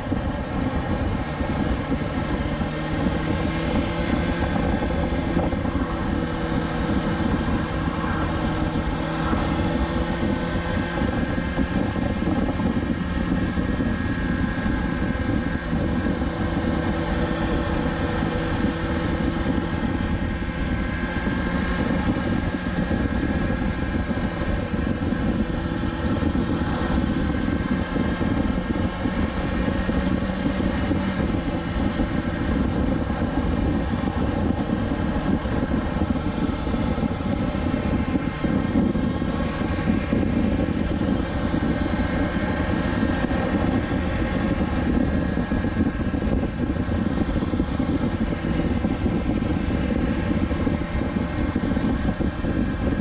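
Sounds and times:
motorcycle engine cruising: 0:00.0 - 0:53.0
wind rushing: 0:00.0 - 0:53.0.

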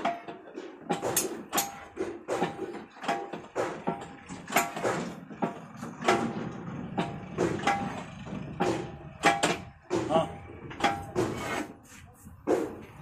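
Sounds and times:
metallic clanks of steel spring: 0:00.9 - 0:01.9.

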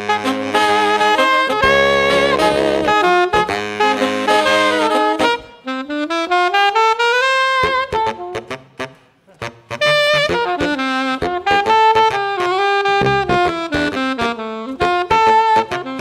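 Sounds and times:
saxophone quartet playing jazz: 0:00.0 - 0:16.0.

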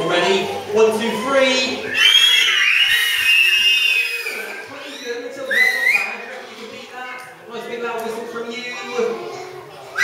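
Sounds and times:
crowd whistling: 0:01.7 - 0:06.3.

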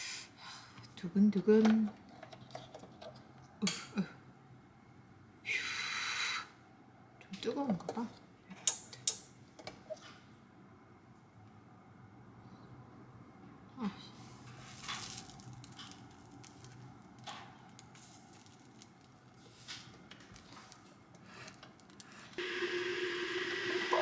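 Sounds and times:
waffle iron sizzling: 0:20.5 - 0:24.0.

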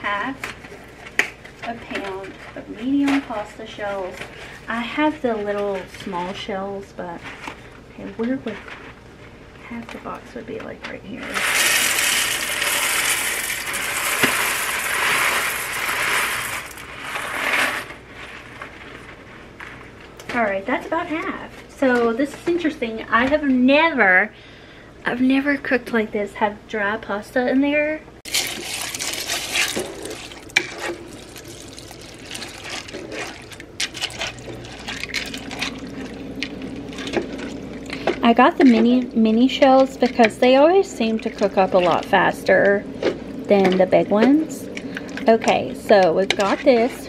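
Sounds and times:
dry pasta pouring into a pot: 0:11.4 - 0:17.8, 0:28.3 - 0:37.8.

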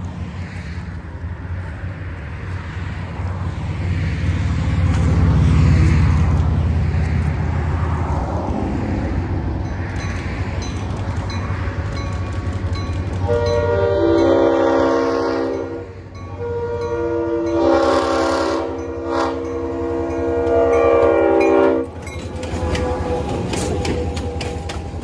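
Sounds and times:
locomotive rumbling: 0:00.0 - 0:25.0
multi-chime locomotive horn: 0:13.2 - 0:25.0.

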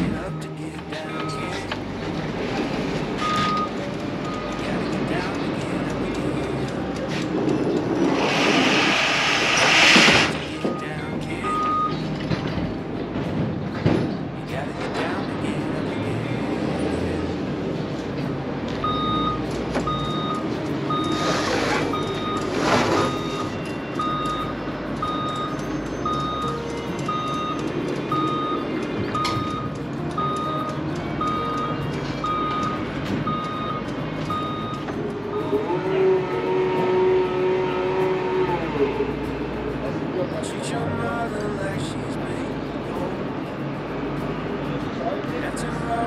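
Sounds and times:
reversing alarm beeping: 0:00.0 - 0:01.7, 0:03.2 - 0:05.3, 0:08.0 - 0:12.1, 0:18.8 - 0:35.6
forklift engine rumble: 0:00.0 - 0:46.0.

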